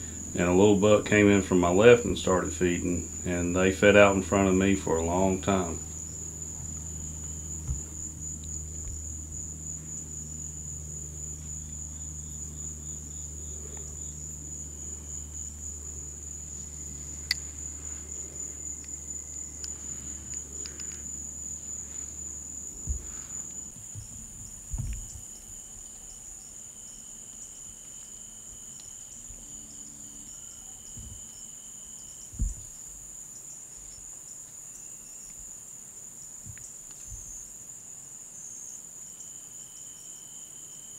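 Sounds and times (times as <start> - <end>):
low hum: 0.0 - 32.8
night insects trilling: 0.0 - 40.9
soft knocks: 7.6 - 8.2
low thump: 7.6 - 9.2, 22.8 - 23.4, 24.0 - 25.2, 32.3 - 32.7.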